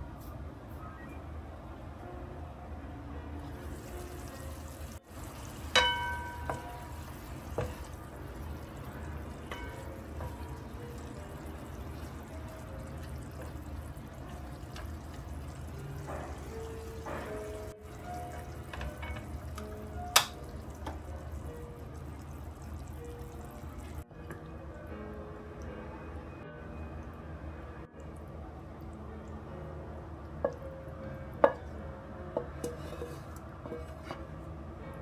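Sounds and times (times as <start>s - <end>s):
food simmering in a pan: 3.4s - 24.0s
wooden spatula stirring: 3.5s - 21.5s.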